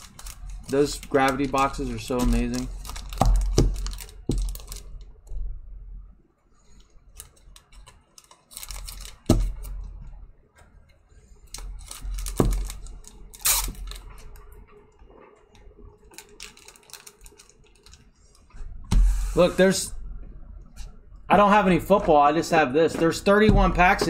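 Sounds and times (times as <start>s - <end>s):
plastic wrapping crinkling: 0.0s - 5.3s, 6.6s - 10.0s, 11.4s - 18.6s.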